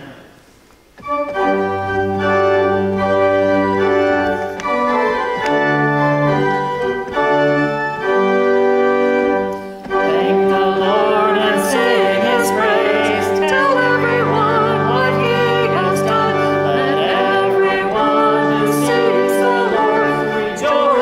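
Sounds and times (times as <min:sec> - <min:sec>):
organ playing held chords: 0:01.0 - 0:21.0
person singing with vibrato: 0:09.9 - 0:21.0.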